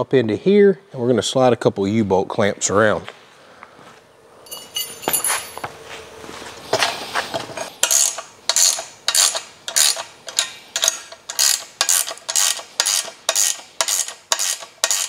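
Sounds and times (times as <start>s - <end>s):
ratchet wrench clicking: 7.8s - 15.0s.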